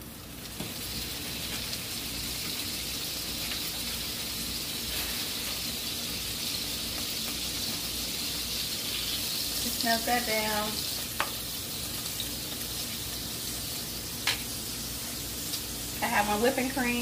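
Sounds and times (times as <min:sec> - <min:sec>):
butter sizzling in pan: 0:00.0 - 0:17.0.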